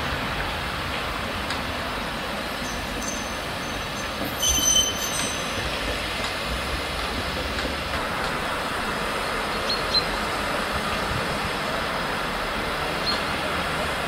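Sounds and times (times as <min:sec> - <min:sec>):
steam locomotive running: 0:00.0 - 0:14.0
high squeal: 0:02.6 - 0:05.9.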